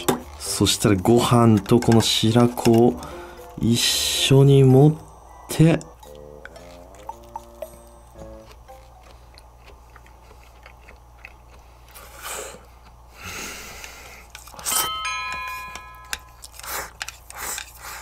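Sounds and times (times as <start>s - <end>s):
chewing food: 5.8s - 14.7s, 16.0s - 18.0s
chime ringing: 14.6s - 16.6s.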